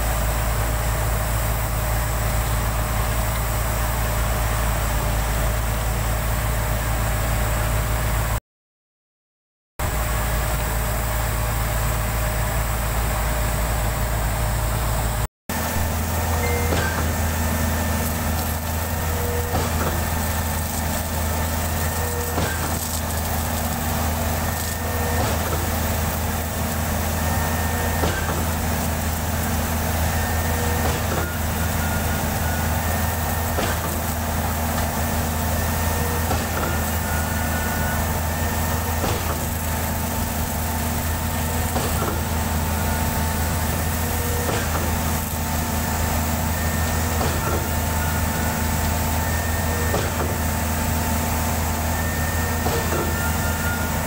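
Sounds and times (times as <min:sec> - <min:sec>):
pump engine humming: 0:00.0 - 0:08.4, 0:09.8 - 0:54.0.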